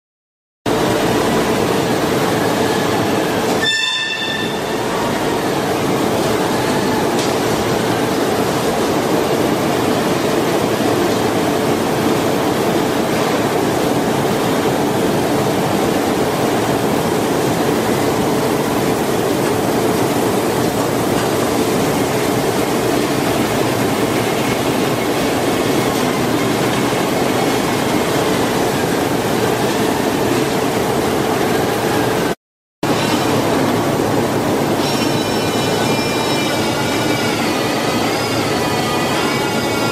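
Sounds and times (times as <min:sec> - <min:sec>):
industrial machinery noise: 0:00.7 - 0:39.9.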